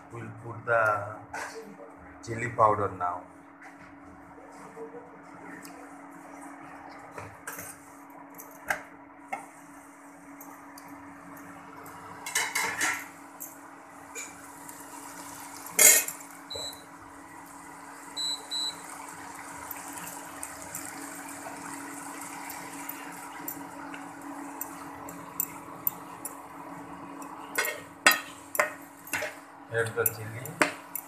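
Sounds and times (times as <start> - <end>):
induction cooktop humming: 0.0 - 31.0
mushrooms frying in a pan: 11.6 - 31.0.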